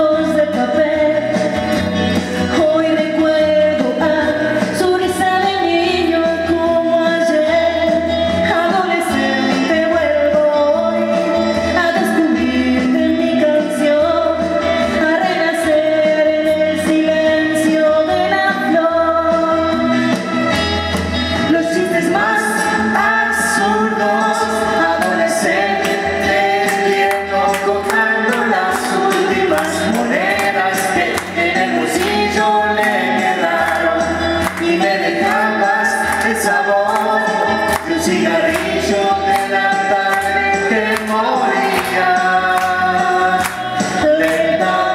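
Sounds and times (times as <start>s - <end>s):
woman singing into a microphone: 0.0s - 20.2s, 21.4s - 44.9s
music with a regular beat: 0.0s - 44.9s
instrumental accompaniment: 18.8s - 44.9s.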